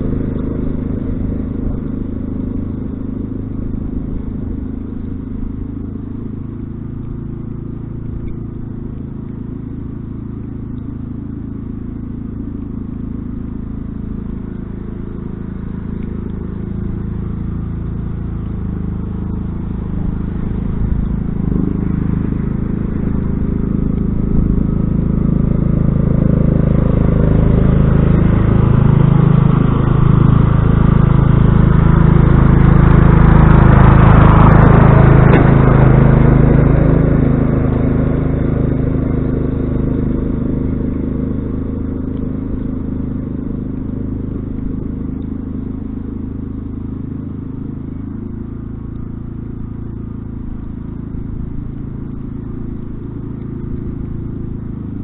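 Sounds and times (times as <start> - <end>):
garden tractor engine running: 0.0 - 55.0
blade scraping snow: 18.6 - 44.5.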